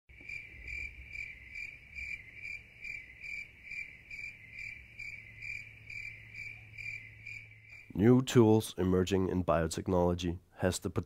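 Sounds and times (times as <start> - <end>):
insects chirping: 0.1 - 8.6.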